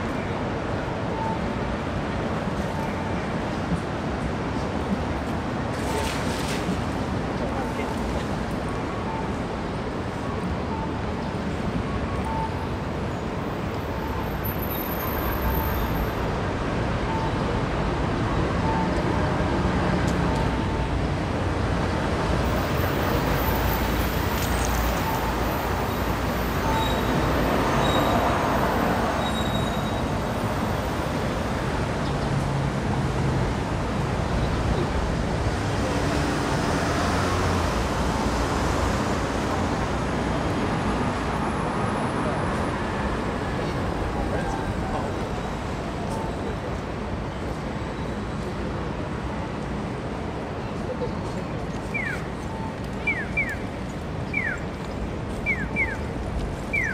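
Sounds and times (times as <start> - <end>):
road traffic roar: 0.0 - 56.9
short beeps: 12.2 - 12.6.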